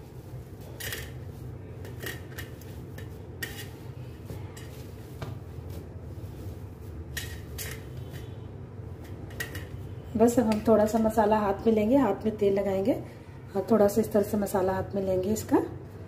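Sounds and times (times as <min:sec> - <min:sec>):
hands kneading mashed potato: 0:00.0 - 0:11.6.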